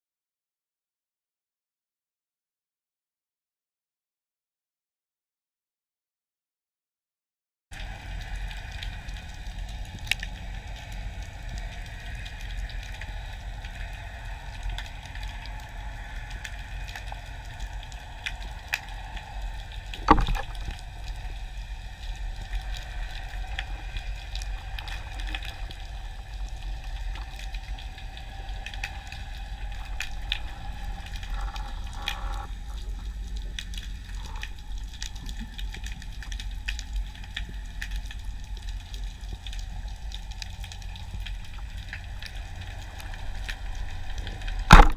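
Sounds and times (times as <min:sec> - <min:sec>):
faint clicks and crackles: 0:07.8 - 0:44.9
underwater low rumble: 0:07.8 - 0:44.9
sharp knock: 0:20.1 - 0:20.4.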